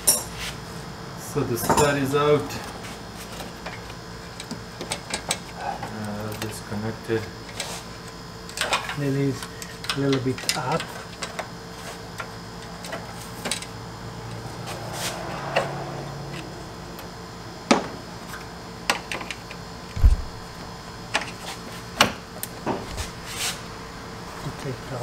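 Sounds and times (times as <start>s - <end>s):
steady hum: 0.0s - 25.0s
heavy thump: 20.0s - 20.5s.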